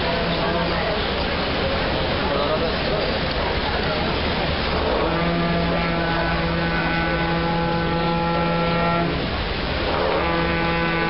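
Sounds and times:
folk music long held notes: 4.8s - 11.0s.

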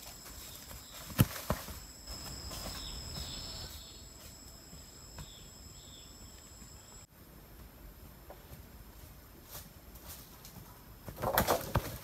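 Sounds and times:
footsteps rustling dry leaves: 0.0s - 4.8s
insects buzzing: 0.0s - 7.1s.

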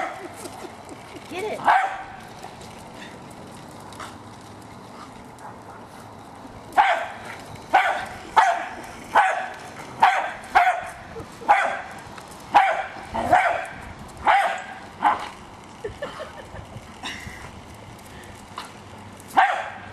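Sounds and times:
dog barking: 1.6s - 2.2s, 6.8s - 10.9s, 11.5s - 11.9s, 12.5s - 15.2s, 19.4s - 19.9s.

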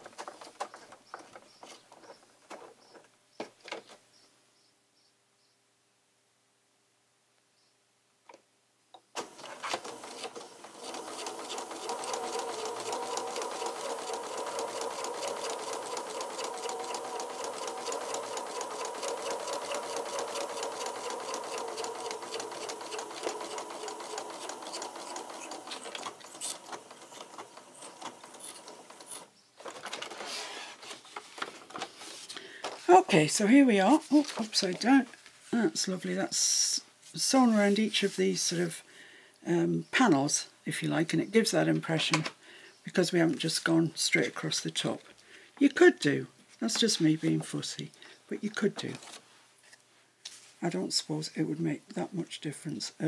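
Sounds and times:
sewing machine stitching: 9.2s - 30.8s.

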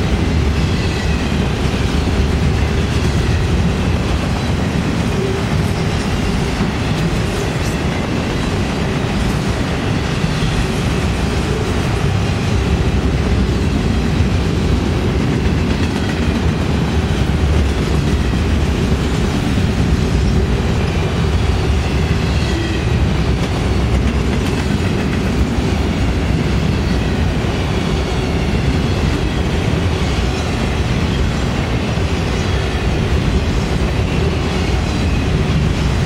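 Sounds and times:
freight train wheels rumbling: 0.0s - 36.0s.

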